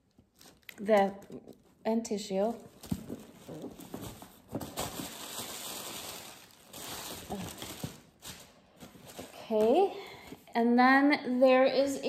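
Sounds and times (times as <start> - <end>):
tissue paper rustling: 2.4 - 9.9.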